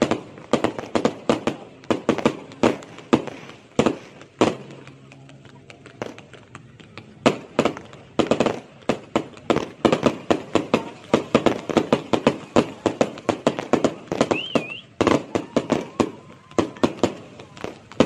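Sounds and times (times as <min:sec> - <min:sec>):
fireworks bursting: 0:00.0 - 0:18.0
warbling firework whistle: 0:14.1 - 0:17.8.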